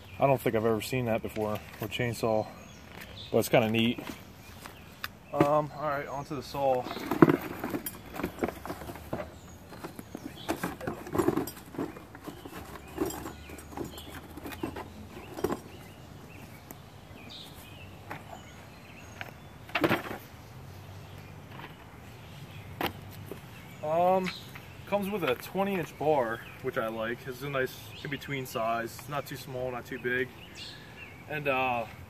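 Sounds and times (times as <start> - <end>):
cardboard box rustling: 6.9 - 16.0.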